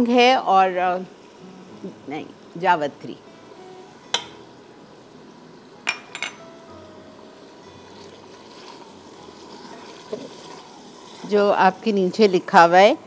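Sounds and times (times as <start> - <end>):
liquid simmering in pot: 7.2 - 12.2.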